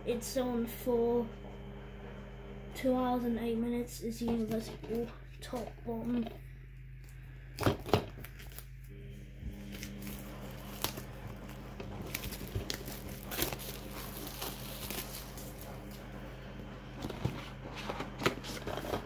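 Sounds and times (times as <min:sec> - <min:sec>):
plastic wrap crinkling: 0:07.0 - 0:08.9, 0:09.6 - 0:16.1.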